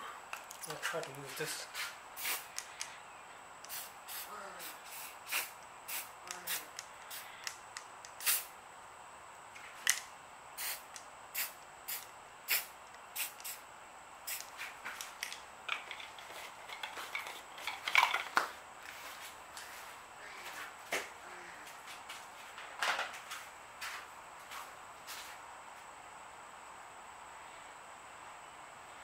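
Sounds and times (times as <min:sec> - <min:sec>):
spray paint can hissing puffs: 0:01.7 - 0:02.9, 0:03.6 - 0:08.5, 0:10.6 - 0:13.6, 0:14.2 - 0:15.1.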